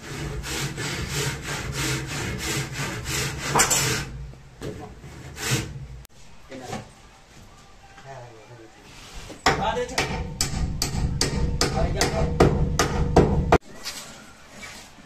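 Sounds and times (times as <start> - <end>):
hand saw cutting wood: 0.0 - 5.8.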